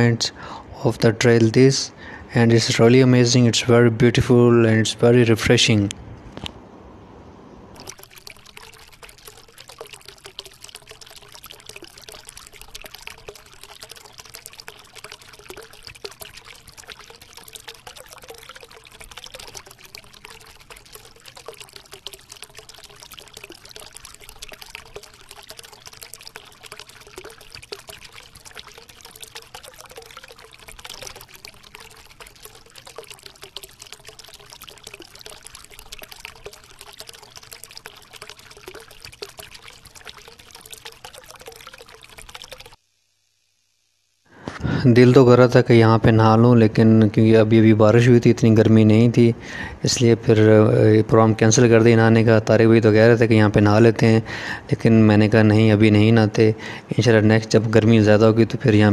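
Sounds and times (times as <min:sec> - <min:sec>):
spring water pouring into pool: 0:07.8 - 0:42.9.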